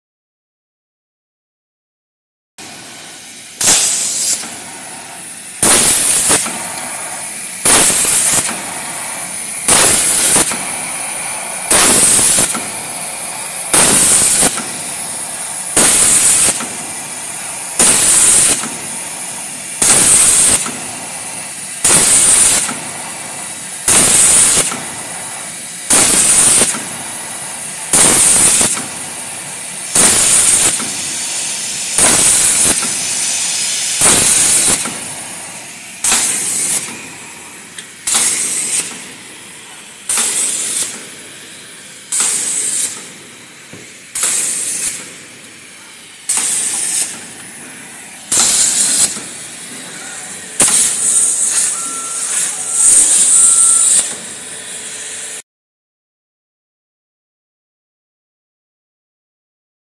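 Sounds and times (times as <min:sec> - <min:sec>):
plasma cutter torch hissing: 0:02.6 - 0:55.4.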